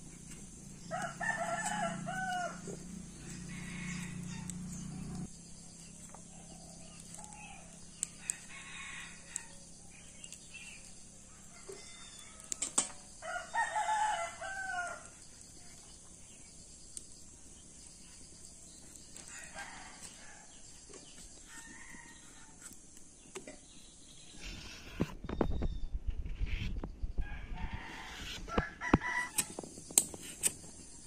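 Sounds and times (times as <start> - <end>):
rooster crowing: 0.8 - 5.3, 8.2 - 9.6, 11.3 - 15.1, 19.2 - 20.6, 27.2 - 29.5.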